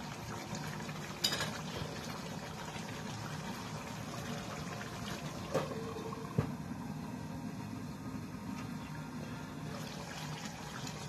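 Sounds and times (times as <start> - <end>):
curry bubbling in a pan: 0.0 - 6.2.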